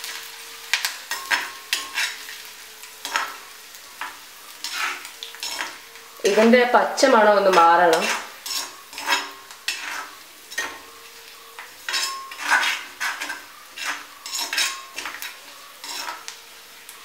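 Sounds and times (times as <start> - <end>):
aromatics sizzling in oil: 0.0 - 17.0
pan ringing: 0.0 - 17.0
metal spatula scraping iron pan: 0.8 - 3.4, 4.0 - 16.4.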